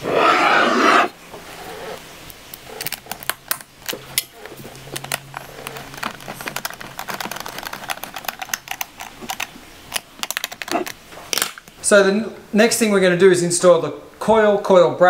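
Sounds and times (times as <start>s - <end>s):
tool and screws tapping plastic: 4.9s - 10.8s.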